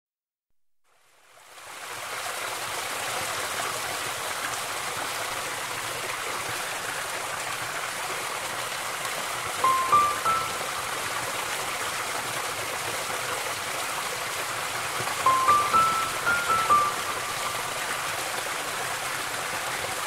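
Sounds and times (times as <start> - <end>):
flowing water rushing: 1.0 - 20.0
whistled notes: 9.7 - 10.6.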